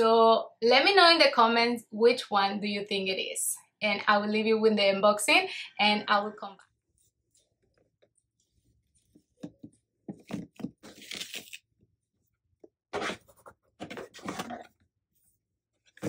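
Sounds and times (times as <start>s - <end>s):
paper and cardboard rustling: 9.0s - 11.6s.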